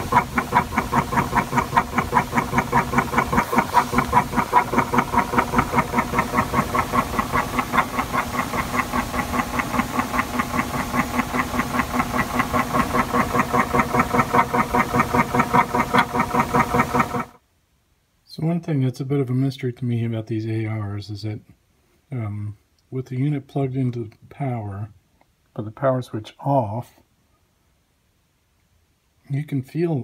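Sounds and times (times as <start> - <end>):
motor humming with rapid clicking: 0.0 - 17.4.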